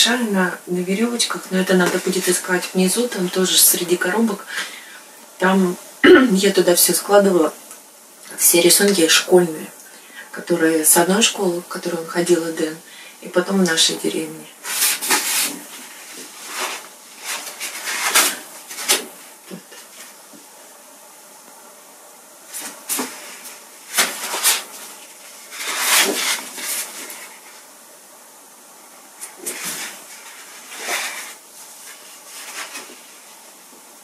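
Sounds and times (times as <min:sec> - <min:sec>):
paper rustling: 0:14.6 - 0:20.2, 0:22.5 - 0:27.7, 0:29.2 - 0:33.4.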